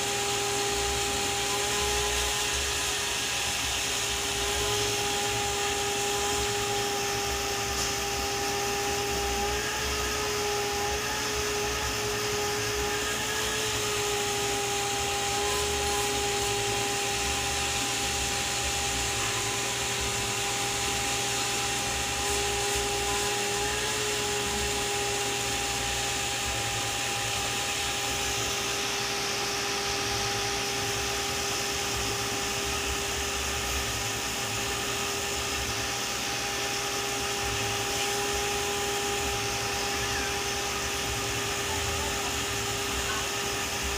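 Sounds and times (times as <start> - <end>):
electric motor whirring: 0.0 - 43.9.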